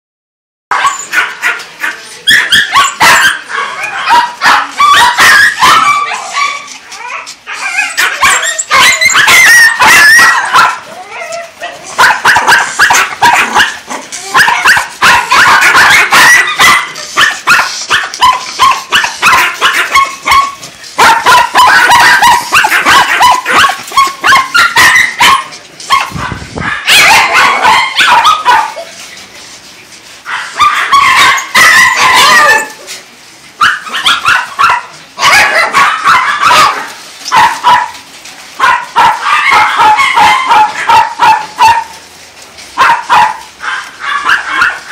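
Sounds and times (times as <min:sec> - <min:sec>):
many dogs barking: 0:00.7 - 0:06.8, 0:07.5 - 0:28.9, 0:30.3 - 0:32.8, 0:33.6 - 0:38.0, 0:38.6 - 0:42.1, 0:42.7 - 0:44.9
dogs whimpering: 0:05.2 - 0:10.3, 0:10.9 - 0:14.7.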